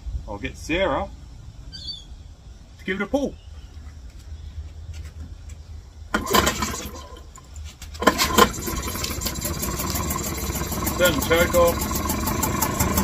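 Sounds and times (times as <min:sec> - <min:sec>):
outboard motor pull-started and running: 0:06.1 - 0:13.0.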